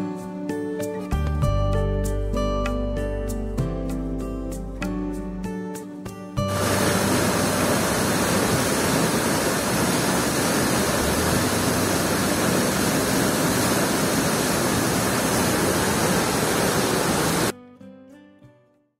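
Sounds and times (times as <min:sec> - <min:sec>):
waterfall rushing over rocks: 0:06.5 - 0:17.5.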